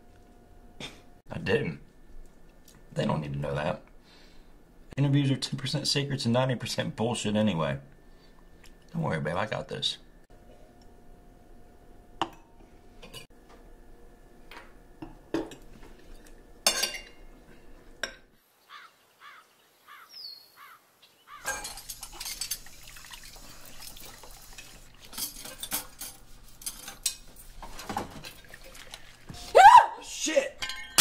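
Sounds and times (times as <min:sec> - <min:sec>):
cutlery and glassware clinking: 0:16.6 - 0:17.2, 0:21.4 - 0:22.8, 0:24.6 - 0:28.4, 0:30.6 - 0:31.0
chirps: 0:20.0 - 0:21.4.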